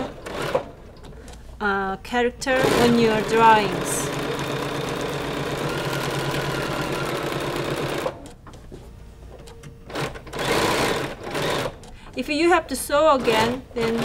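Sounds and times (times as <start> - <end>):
sewing machine stitching: 0.0 - 0.8, 2.6 - 8.3, 9.9 - 11.8.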